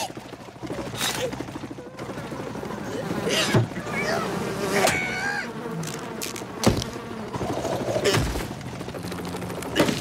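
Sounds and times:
cartoon bees buzzing: 0:02.0 - 0:08.5.

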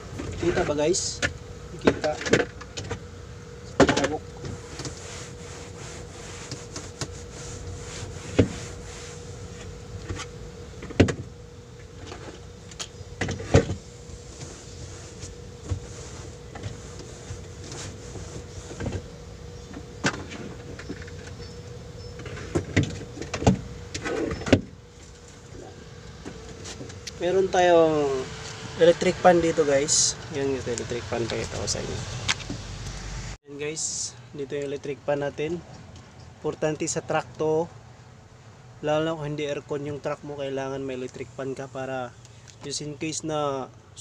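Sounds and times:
steady hum: 0:00.0 - 0:44.0
cloth wiping dashboard: 0:04.0 - 0:12.5, 0:13.2 - 0:21.5.

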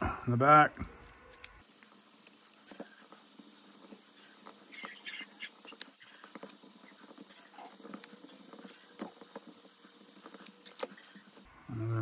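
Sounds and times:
small clicks of driver and screws: 0:00.8 - 0:02.9.

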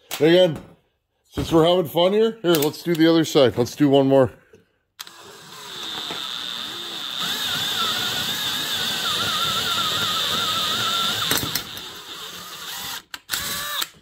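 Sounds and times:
cordless drill whining: 0:05.0 - 0:14.0
drill clicks: 0:05.0 - 0:14.0.

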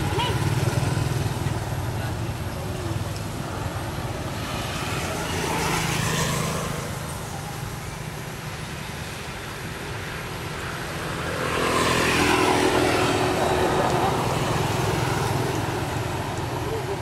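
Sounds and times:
vehicle passing: 0:00.0 - 0:07.9, 0:10.2 - 0:17.0.

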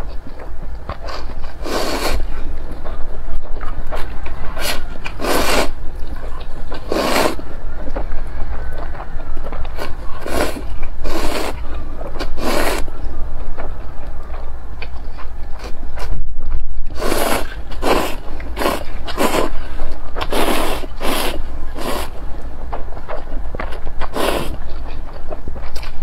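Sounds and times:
noodles being slurped: 0:01.0 - 0:02.4, 0:04.5 - 0:05.8, 0:06.4 - 0:07.5, 0:09.8 - 0:13.0, 0:16.9 - 0:22.2, 0:24.0 - 0:24.7.

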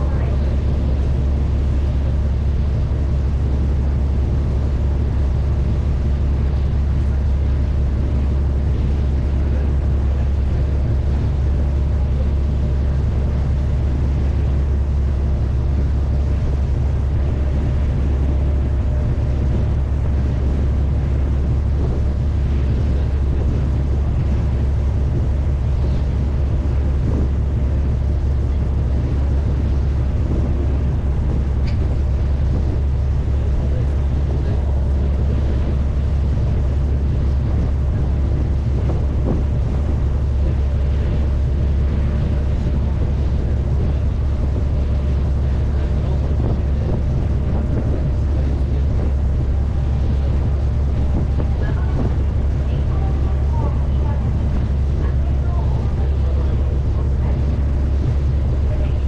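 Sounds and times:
ferry diesel engines droning: 0:00.0 - 0:59.0.

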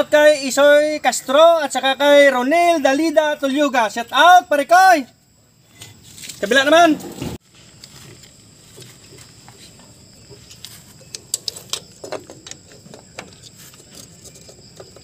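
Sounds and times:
brake parts clicking and tapping: 0:07.8 - 0:15.0.

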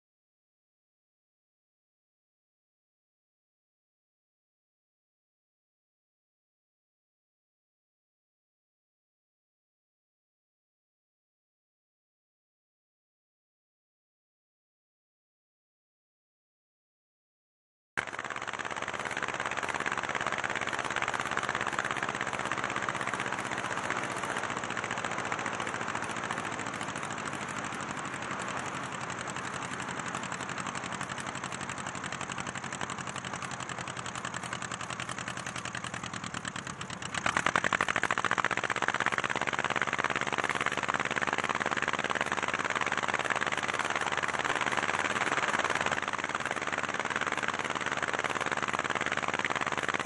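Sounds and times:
light aircraft engine and propeller: 0:18.0 - 0:50.0.

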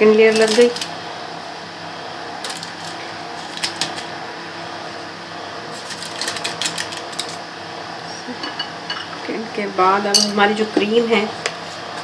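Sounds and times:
low background hum: 0:00.0 - 0:12.0
paper liner crinkling: 0:02.4 - 0:04.1, 0:05.6 - 0:07.4.

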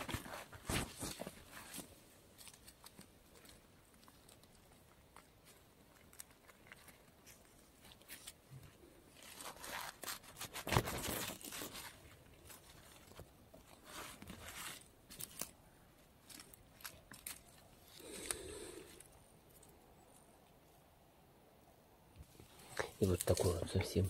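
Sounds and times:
leaf litter rustling and crackling: 0:09.0 - 0:19.0, 0:22.5 - 0:24.0
twigs snapping: 0:14.7 - 0:20.3.

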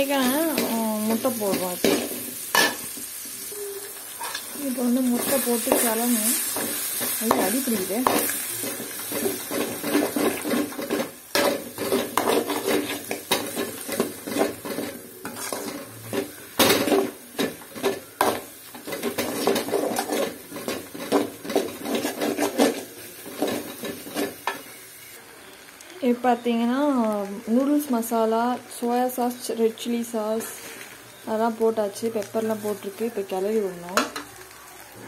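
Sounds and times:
metal spatula scraping a pan: 0:00.0 - 0:24.8
light sizzle: 0:00.0 - 0:35.0.

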